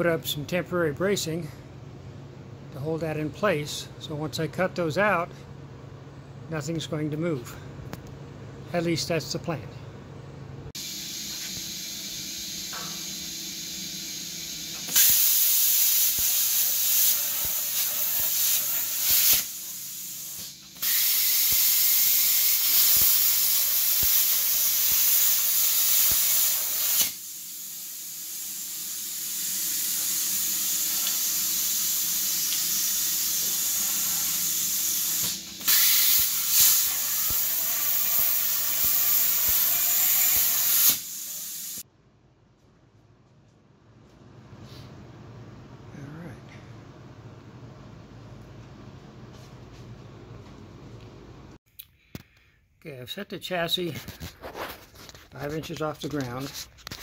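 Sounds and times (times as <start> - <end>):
plasma cutter hissing: 10.8 - 41.8.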